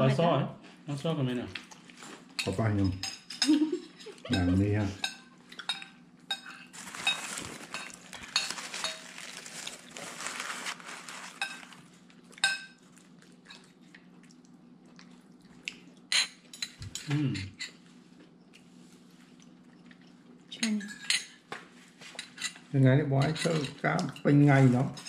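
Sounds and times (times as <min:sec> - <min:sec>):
cutlery clinking on dishes: 0:02.1 - 0:09.1, 0:16.1 - 0:17.8, 0:20.6 - 0:21.4, 0:23.2 - 0:24.3.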